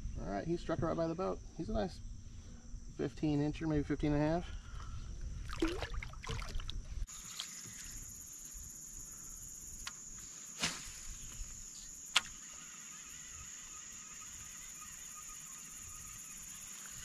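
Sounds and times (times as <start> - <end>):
low wind rumble: 0.0 - 7.1
high-pitched insect chorus: 0.0 - 17.0.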